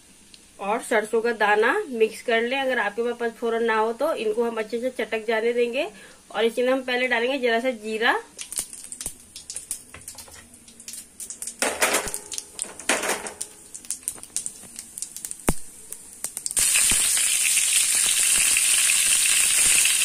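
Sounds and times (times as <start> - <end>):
loud frying sizzle: 0.0 - 20.0
seeds crackling in hot oil: 6.7 - 20.0
sharp popping of seeds: 8.4 - 20.0.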